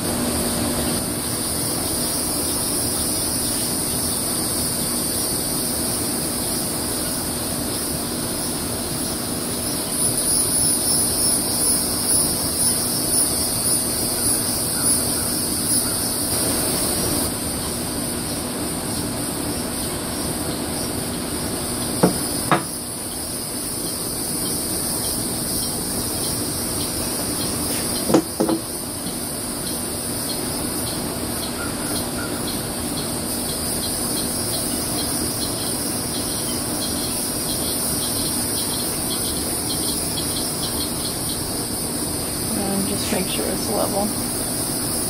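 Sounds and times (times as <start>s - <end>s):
insect chorus: 0.0s - 45.0s
glassware clinking: 22.0s - 22.7s.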